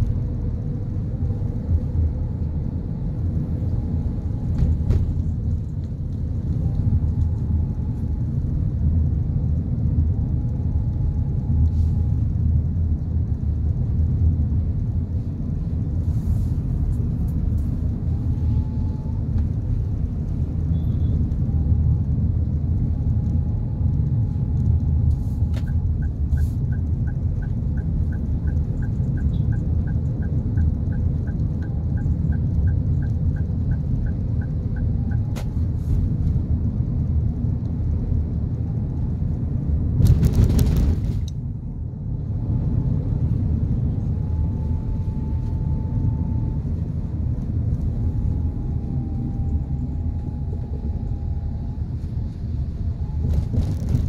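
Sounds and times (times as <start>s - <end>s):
road and engine rumble: 0.0s - 54.0s
turn signal ticking: 22.7s - 35.8s.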